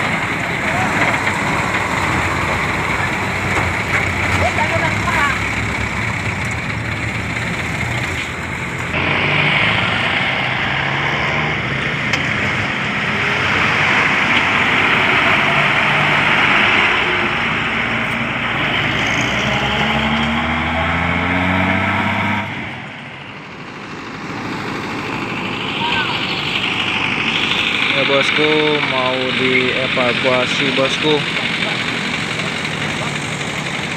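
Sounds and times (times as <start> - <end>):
truck engine revving: 0.0 - 33.9.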